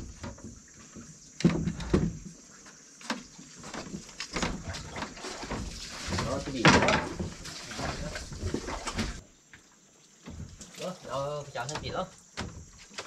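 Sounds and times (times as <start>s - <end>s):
knocks on wooden boards: 1.4s - 2.2s.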